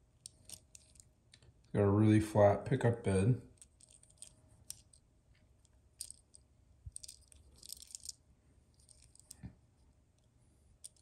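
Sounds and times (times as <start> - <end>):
toy car clicking and rustling: 0.2 - 1.5, 3.5 - 5.0, 5.6 - 9.4, 10.8 - 11.0.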